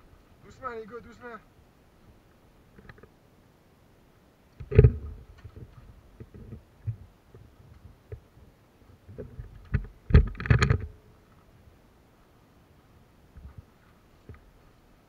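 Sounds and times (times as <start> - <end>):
thumps and knocks: 4.6 - 7.0, 9.2 - 11.0.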